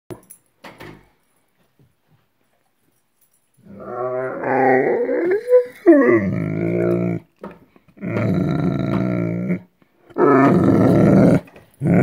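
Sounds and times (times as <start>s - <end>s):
dog grumbling vocalization: 3.7s - 7.3s, 7.9s - 12.0s.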